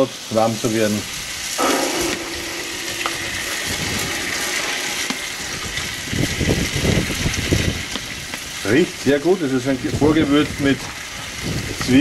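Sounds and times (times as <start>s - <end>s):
food sizzling on a grill: 0.0s - 12.0s
low bumps: 1.6s - 8.4s.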